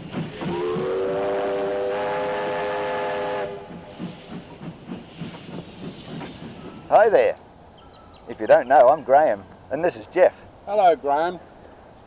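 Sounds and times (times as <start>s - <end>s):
locomotive exhaust chuffing: 0.0s - 7.2s
steam locomotive whistle: 0.3s - 4.3s.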